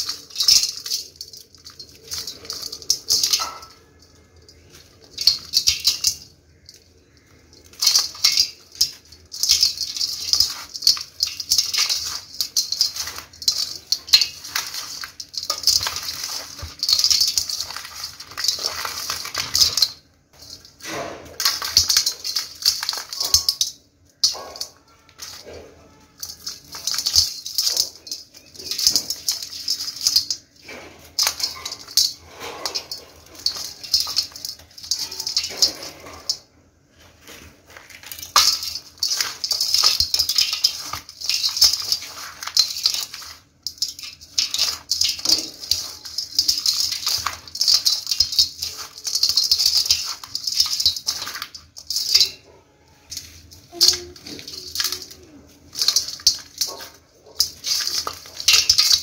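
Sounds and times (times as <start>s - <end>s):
grains pattering on metal bowl: 0.0s - 59.0s.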